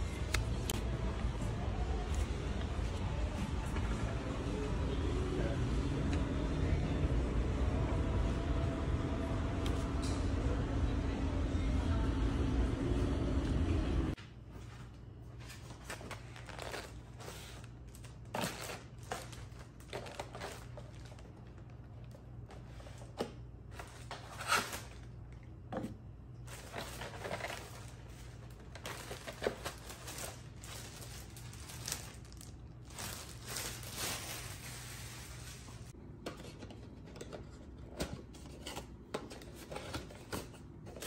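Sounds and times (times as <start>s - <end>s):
plastic bag rustling: 15.6s - 21.8s, 26.5s - 35.9s.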